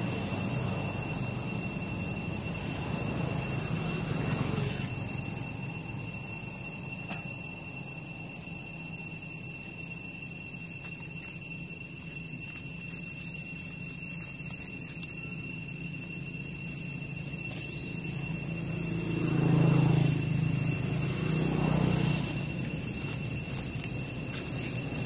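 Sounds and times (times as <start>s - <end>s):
low motor hum: 0.0s - 7.9s, 13.6s - 25.0s.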